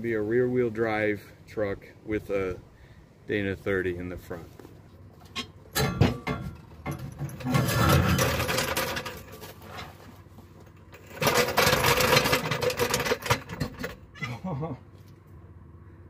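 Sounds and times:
metal knocks: 5.3s - 8.9s
floor jack rolling on concrete: 5.8s - 14.0s.

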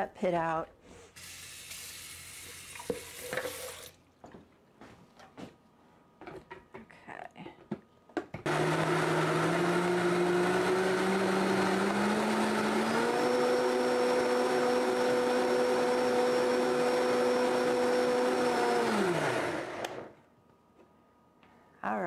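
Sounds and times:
blender motor running: 8.5s - 20.1s.

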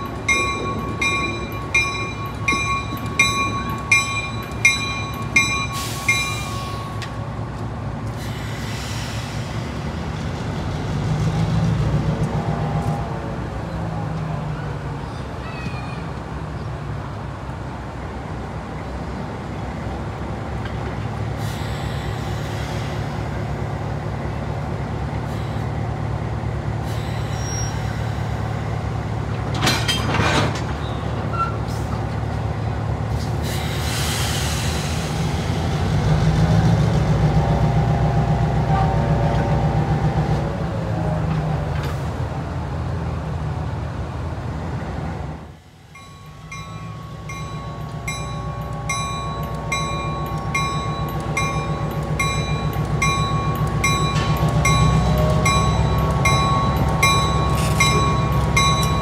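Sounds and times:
locomotive engine rumbling: 0.0s - 59.0s.

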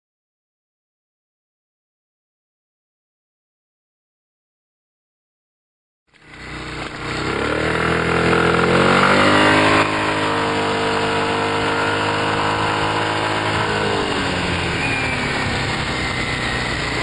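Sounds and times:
scooter engine: 6.1s - 17.0s
wind and road noise: 6.1s - 17.0s.

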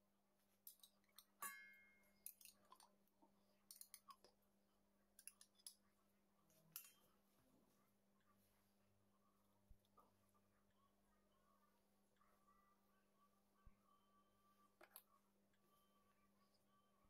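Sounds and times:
metal spoon clinking on glass jar: 0.7s - 2.8s.

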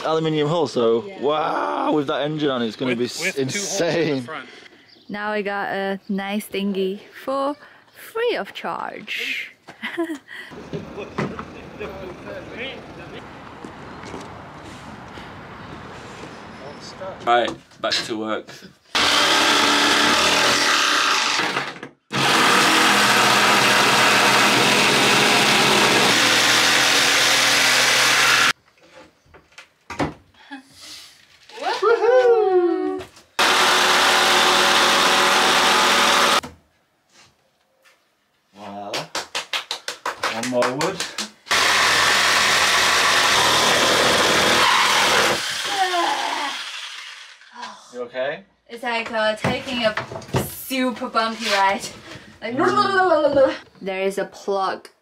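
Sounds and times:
jigsaw cutting wood: 18.9s - 28.6s, 33.4s - 36.4s, 41.5s - 47.4s.

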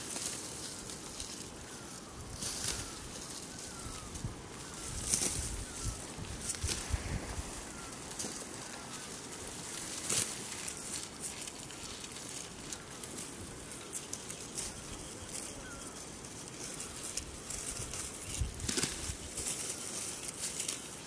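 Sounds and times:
dry wheat stalks rustling: 0.0s - 21.0s
faint bird chirps: 0.6s - 9.4s, 13.7s - 17.1s.

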